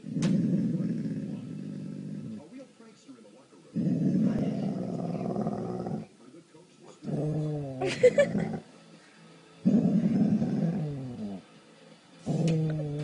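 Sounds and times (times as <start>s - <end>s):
dog growling: 0.0s - 2.5s, 3.7s - 6.1s, 7.0s - 8.7s, 9.6s - 11.4s, 12.2s - 13.0s.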